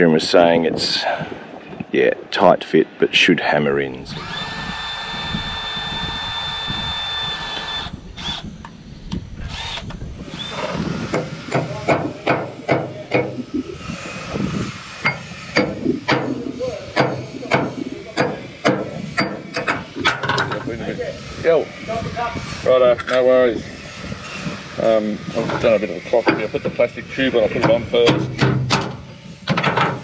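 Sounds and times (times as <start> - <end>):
power tool whining: 4.1 - 30.0
hammer striking metal propeller: 15.0 - 20.7.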